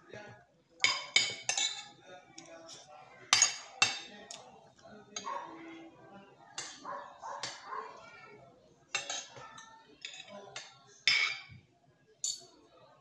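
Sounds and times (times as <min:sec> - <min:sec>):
cutlery clinking on a plate: 0:00.8 - 0:04.5, 0:08.9 - 0:11.6, 0:12.2 - 0:12.6.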